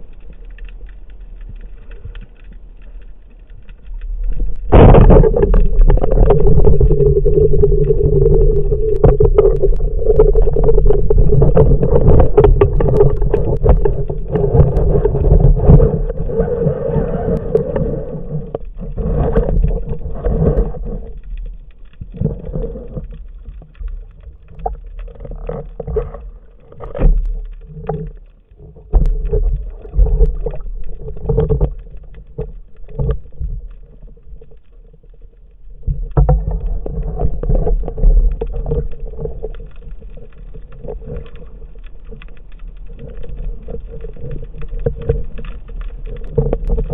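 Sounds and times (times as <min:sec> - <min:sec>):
underwater water rushing: 0:00.0 - 0:46.9
underwater knocks: 0:04.5 - 0:16.5.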